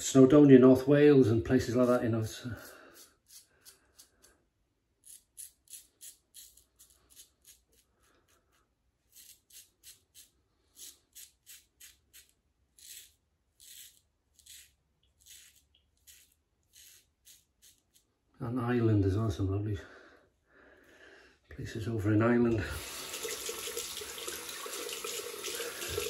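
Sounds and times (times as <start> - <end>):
razor scraping stubble: 1.6 - 4.3, 5.0 - 18.1.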